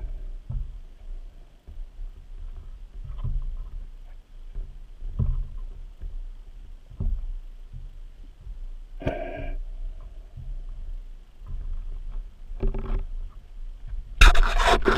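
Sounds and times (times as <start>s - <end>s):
underwater low rumble: 0.0s - 14.9s
dull knock: 0.4s - 0.8s.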